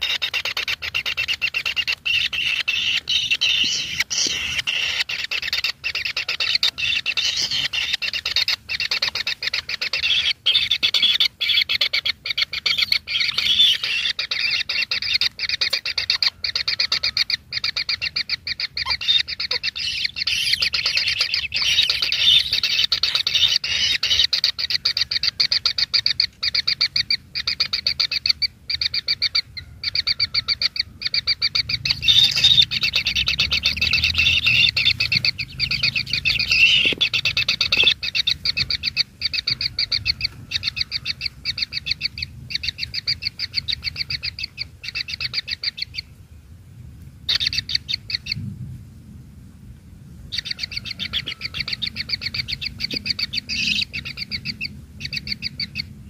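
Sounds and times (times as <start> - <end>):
nestlings chittering: 0.0 - 16.3, 18.0 - 24.3, 31.2 - 40.9.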